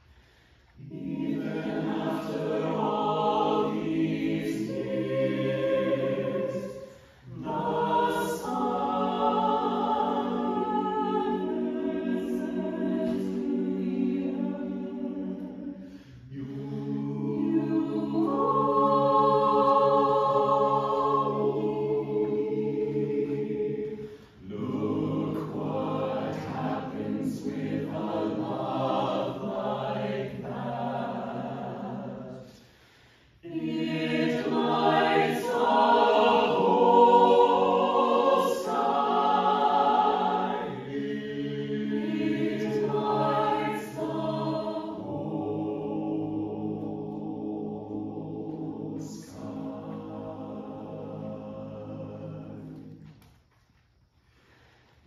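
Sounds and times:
short breaths: 0.0s - 0.8s, 6.8s - 7.3s, 15.8s - 16.3s, 24.0s - 24.4s, 32.5s - 33.4s, 54.2s - 55.0s
choir singing a cappella: 0.0s - 53.4s.

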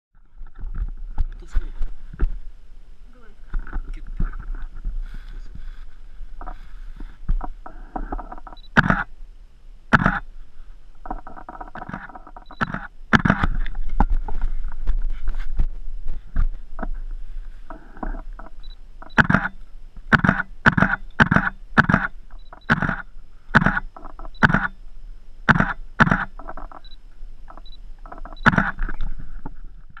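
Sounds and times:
rustling handling noise: 0.2s - 8.6s, 10.4s - 20.1s
autofocus beep: 8.5s - 9.1s, 12.4s - 13.4s, 18.6s - 24.8s, 25.5s - 28.7s
camera shutter clicks: 8.7s - 9.1s, 9.9s - 10.2s, 12.6s - 13.5s, 19.1s - 24.8s, 25.5s - 26.9s, 28.4s - 28.8s.

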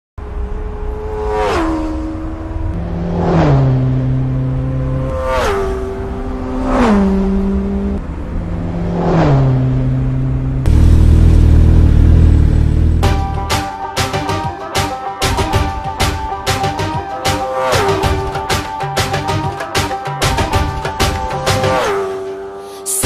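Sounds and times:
motorcycles passing at speed: 0.2s - 13.3s, 17.2s - 18.4s, 20.4s - 22.6s.

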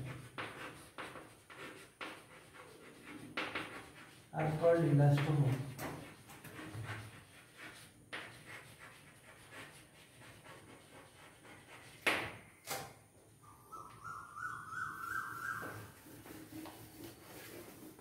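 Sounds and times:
chalk tapping and scraping on blackboard: 0.0s - 12.5s, 15.0s - 18.0s
thin wavering high tone: 13.4s - 16.0s.

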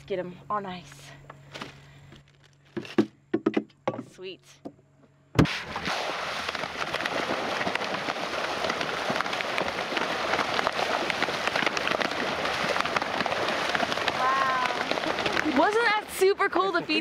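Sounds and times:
fish splashing at surface: 5.4s - 16.0s.

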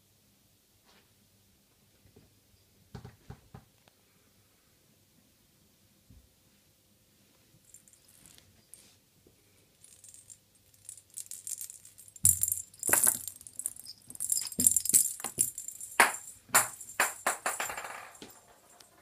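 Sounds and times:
cat toy jingling and rattling: 9.8s - 19.0s.

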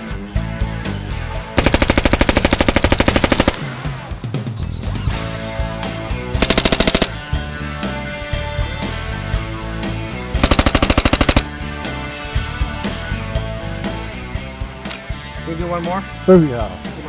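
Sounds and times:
background music: 0.0s - 17.0s
submachine gun automatic fire: 1.6s - 3.8s, 6.4s - 7.2s, 10.4s - 11.5s.

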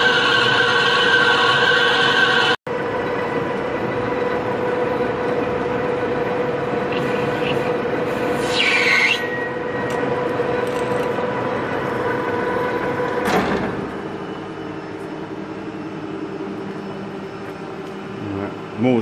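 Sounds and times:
high squeal: 0.0s - 2.6s, 6.9s - 9.9s, 13.9s - 17.8s
lathe cutting metal: 0.0s - 5.0s.

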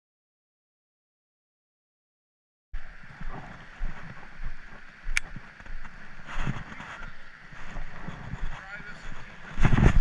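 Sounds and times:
wind rumble on microphone: 2.8s - 10.0s
handling bumps on microphone: 6.3s - 10.0s.

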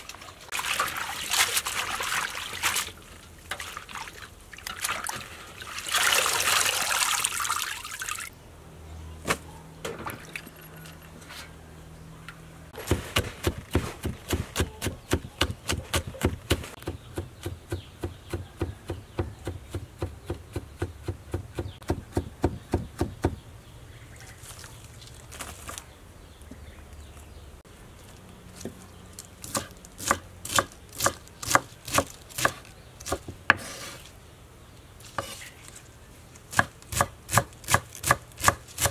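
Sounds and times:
water splashing in a basin: 0.0s - 8.4s
cleaver chopping on wooden board: 12.8s - 23.4s, 36.5s - 38.9s.

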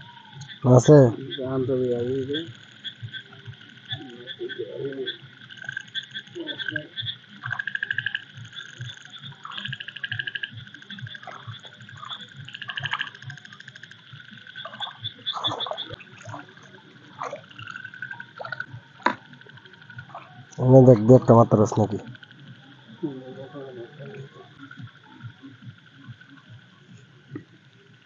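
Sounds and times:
frogs trilling: 0.0s - 28.0s
water splashing: 3.1s - 13.6s, 14.5s - 21.4s.

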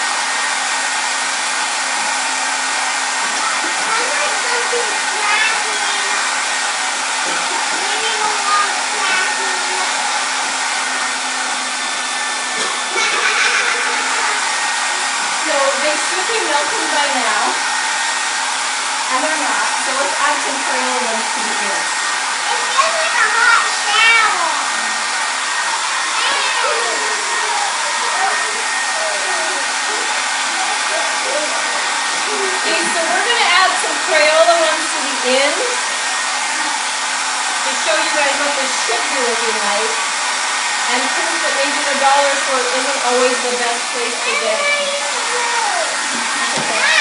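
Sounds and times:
hair dryer blowing: 0.0s - 47.0s.

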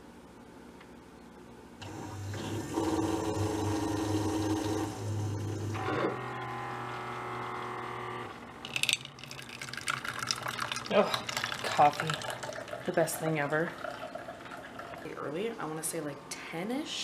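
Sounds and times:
coffee maker pump humming: 1.8s - 16.1s
hot coffee sputtering and hissing: 8.7s - 15.2s.

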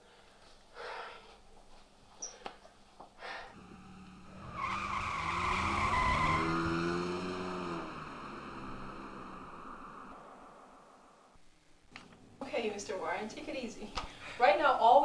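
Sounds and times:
car driving past: 3.6s - 11.4s.

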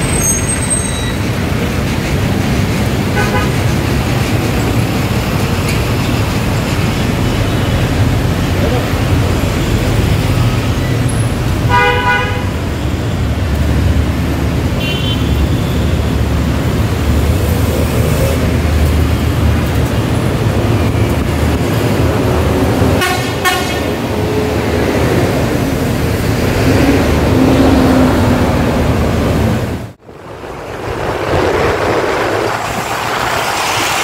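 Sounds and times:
bus engine: 0.0s - 34.0s
traffic on wet road: 0.0s - 34.0s
bus horn toots: 3.2s - 3.7s, 9.6s - 12.8s, 14.8s - 16.1s, 23.0s - 24.1s.

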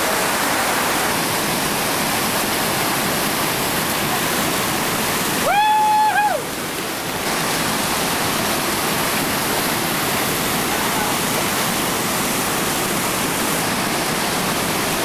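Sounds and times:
whitewater rapids roaring: 0.0s - 15.0s.

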